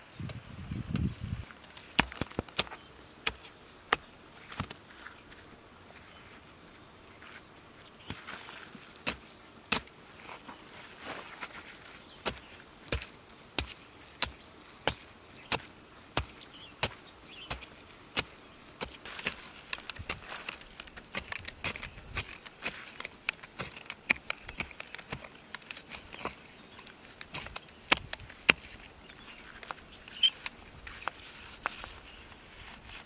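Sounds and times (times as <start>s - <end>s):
digging tool striking gravelly soil: 1.0s - 4.8s, 8.0s - 33.0s
soil and pebbles spilling: 8.0s - 33.0s.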